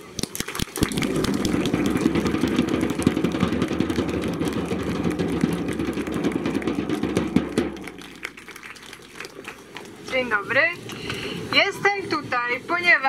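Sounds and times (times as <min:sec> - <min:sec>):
crowd applauding: 0:00.0 - 0:10.2.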